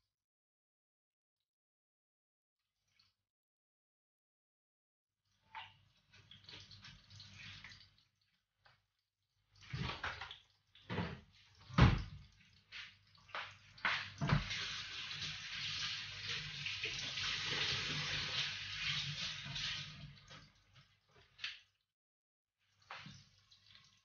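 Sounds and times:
tap running into steel sink: 0:13.4 - 0:14.6.

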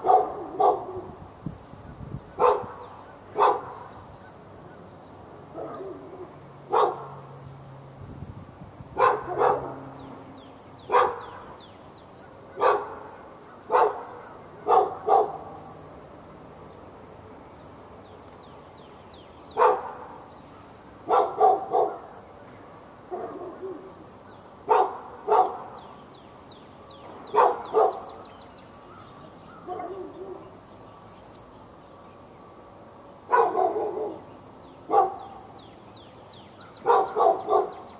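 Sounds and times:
dog barking: 0:00.0 - 0:01.2, 0:02.4 - 0:03.8, 0:05.5 - 0:07.2, 0:09.0 - 0:09.9, 0:10.9 - 0:11.3, 0:12.6 - 0:15.6, 0:19.6 - 0:20.1, 0:21.1 - 0:22.1, 0:23.1 - 0:23.9, 0:24.7 - 0:25.7, 0:27.3 - 0:28.2, 0:29.7 - 0:30.5, 0:33.3 - 0:34.2, 0:34.9 - 0:35.5, 0:36.8 - 0:37.9.

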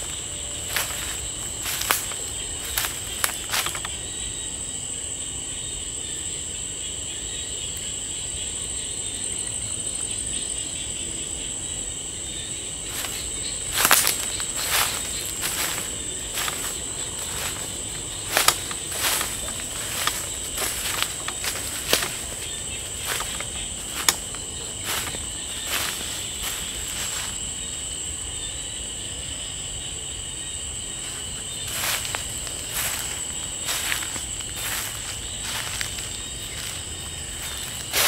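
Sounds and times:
footsteps crunching dry leaves: 0:00.0 - 0:04.0, 0:12.8 - 0:28.2, 0:30.7 - 0:38.0
insects trilling high: 0:00.0 - 0:38.0
lower insect trill: 0:00.0 - 0:38.0.

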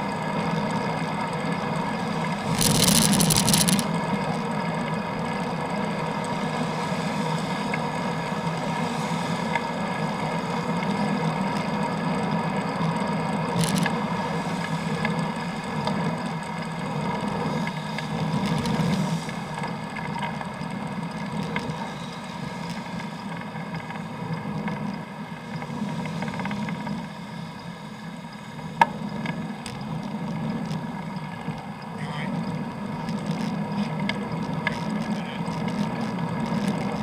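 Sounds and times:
bicycle riding rumble: 0:00.0 - 0:37.0
wind: 0:00.0 - 0:37.0.

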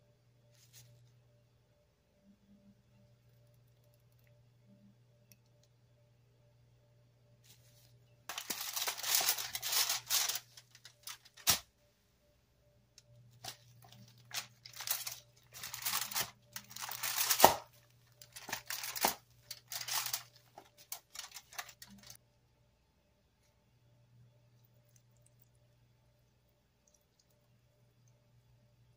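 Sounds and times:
aluminium foil crinkling: 0:07.6 - 0:11.7, 0:13.3 - 0:22.2.

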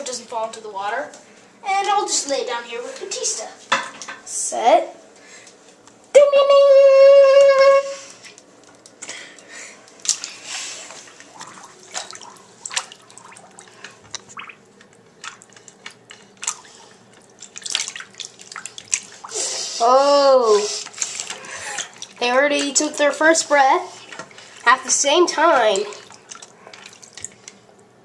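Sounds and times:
water splashing in a bathtub: 0:09.9 - 0:27.8.

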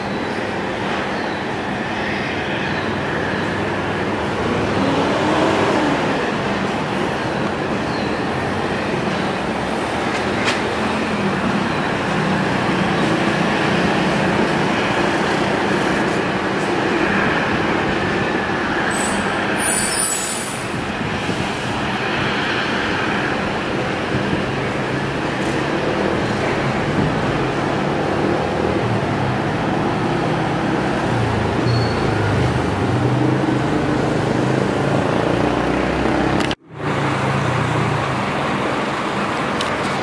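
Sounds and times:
jet engines roaring: 0:00.0 - 0:31.6.

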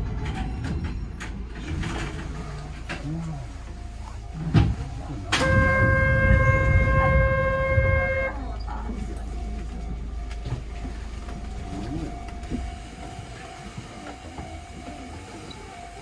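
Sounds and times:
low rumble: 0:00.0 - 0:12.8
steady signal tone: 0:05.0 - 0:14.0.

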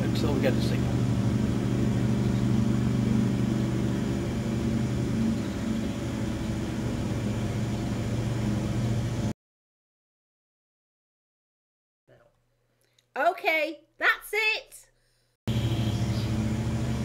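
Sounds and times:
engine droning: 0:00.0 - 0:09.3, 0:15.5 - 0:17.0.

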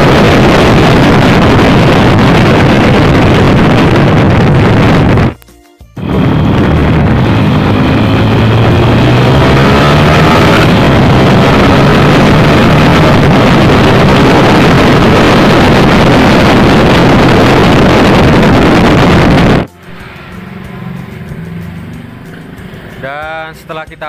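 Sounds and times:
wind buffeting microphone: 0:00.0 - 0:05.4, 0:06.0 - 0:19.7
motorcycle engine at high revs: 0:06.0 - 0:23.6.

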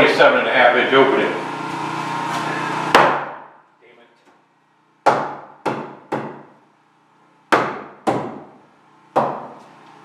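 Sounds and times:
hammer striking wood: 0:02.9 - 0:03.5, 0:05.0 - 0:06.5, 0:07.5 - 0:09.6.

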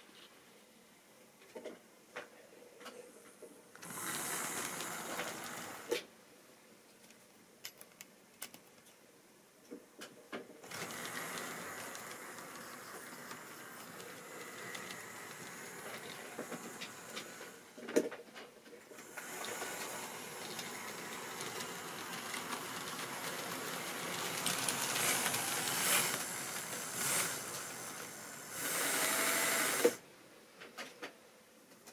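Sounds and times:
model train motor whirring: 0:03.8 - 0:06.0, 0:10.6 - 0:17.8, 0:19.0 - 0:30.0
wheels rattling over rails: 0:03.8 - 0:06.0, 0:10.6 - 0:17.7, 0:19.0 - 0:30.0.

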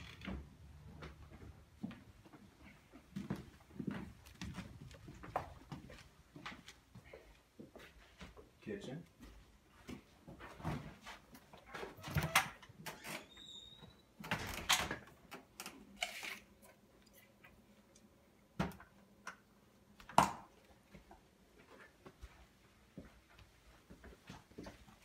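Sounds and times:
items rustling and knocking: 0:09.3 - 0:12.4.

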